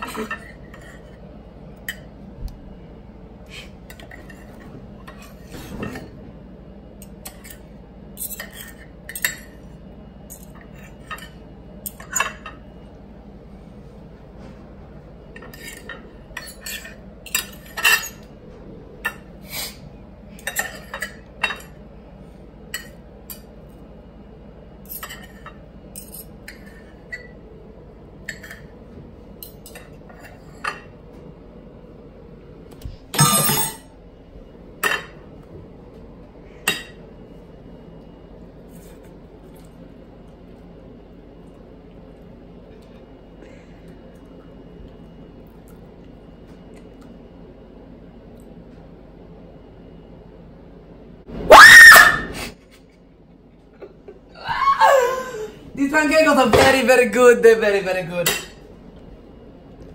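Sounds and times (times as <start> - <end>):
knife and fork scraping a plate: 7.2 - 9.5, 15.4 - 18.3.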